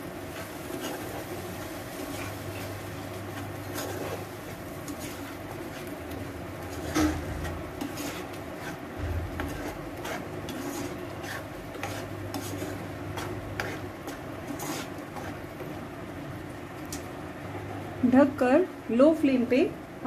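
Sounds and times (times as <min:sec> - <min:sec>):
metal spoon scraping a pan: 0:00.0 - 0:15.7.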